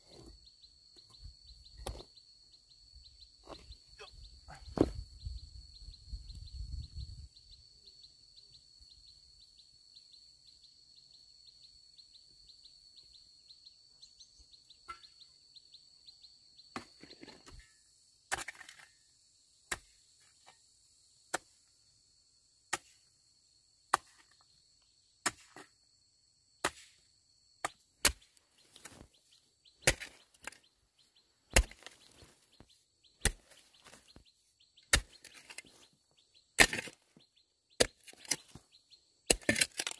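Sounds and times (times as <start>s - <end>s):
blade chopping wood: 29.8s - 30.6s, 31.5s - 32.3s, 33.2s - 34.1s, 34.9s - 35.7s, 36.6s - 37.0s, 39.3s - 39.9s.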